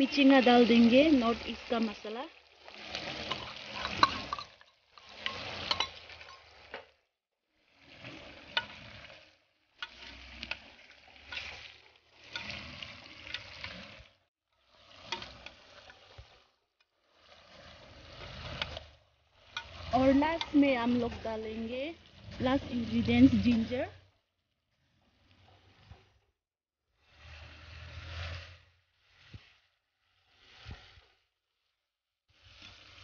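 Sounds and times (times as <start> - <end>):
metal spoon scraping a pot: 0.0 - 6.9, 8.4 - 9.2, 9.8 - 14.1, 14.7 - 23.9, 32.4 - 33.0
pork sizzling in a pot: 0.0 - 33.0
spoon clinking against pot: 3.2 - 6.6.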